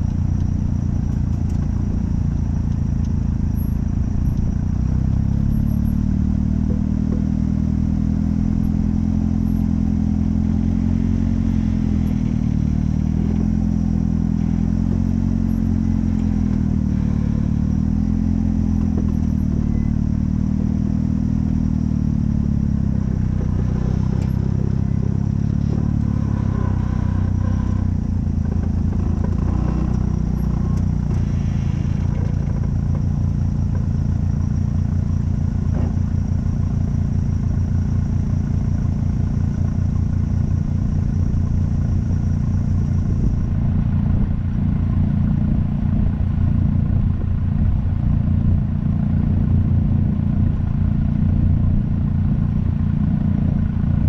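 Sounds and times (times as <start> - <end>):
vehicle engine running low revs: 0.0 - 54.0.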